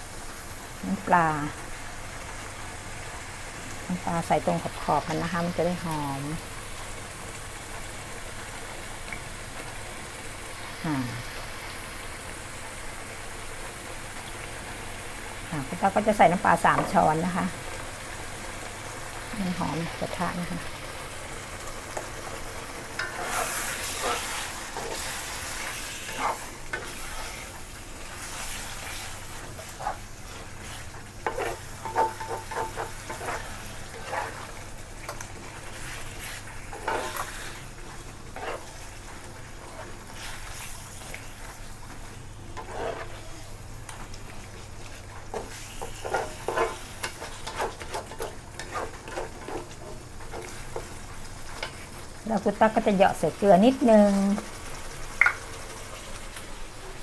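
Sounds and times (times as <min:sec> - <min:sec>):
pork sizzling in a hot pan: 0:00.0 - 0:57.0
spatula scraping a pan: 0:22.9 - 0:51.9.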